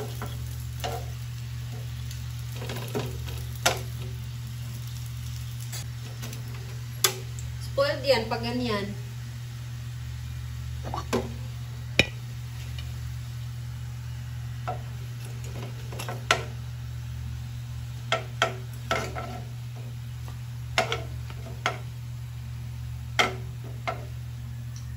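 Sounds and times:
steady low hum: 0.0 - 24.9
metal tongs tapping pan and plate: 12.0 - 12.2, 20.8 - 21.8, 23.2 - 24.1.

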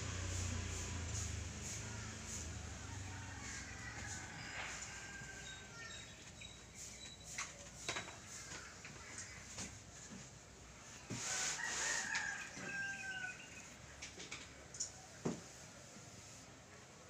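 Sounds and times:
rooster crowing: 2.8 - 5.8, 11.2 - 13.8.

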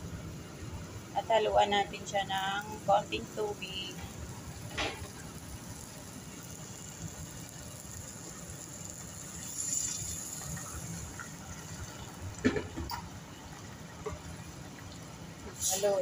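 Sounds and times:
water pouring into pan: 5.0 - 16.0.

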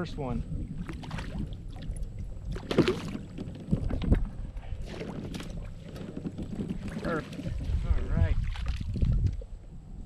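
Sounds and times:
fish thrashing and splashing: 0.8 - 7.8.

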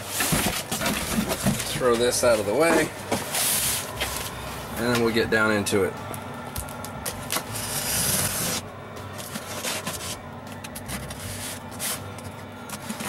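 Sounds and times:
knife scraping packing tape: 7.3 - 8.6.

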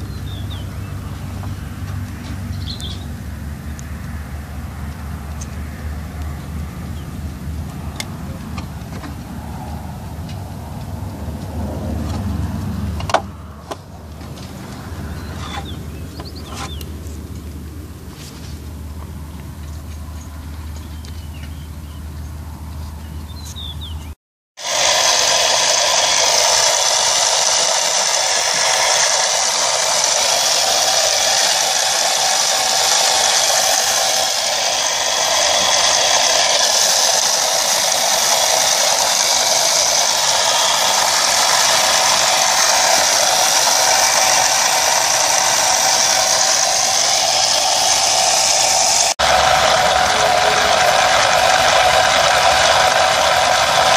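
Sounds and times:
hydraulic pump whirring and rattling: 0.0 - 3.2, 4.5 - 16.9, 24.6 - 53.9
low machine hum: 25.8 - 53.9.

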